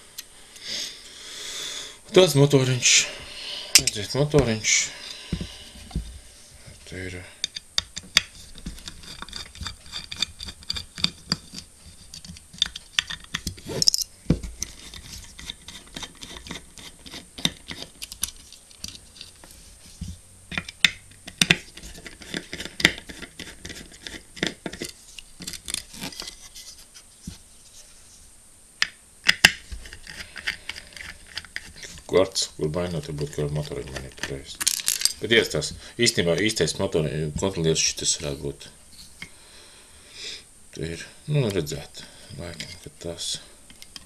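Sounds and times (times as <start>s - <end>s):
screwdriver clicking and scratching: 7.5s - 19.5s, 20.5s - 26.5s, 29.7s - 32.0s.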